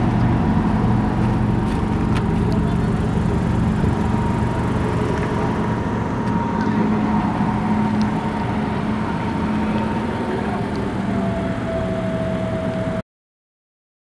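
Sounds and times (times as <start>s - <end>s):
car engine idling: 0.0s - 13.0s
voices: 2.2s - 12.0s.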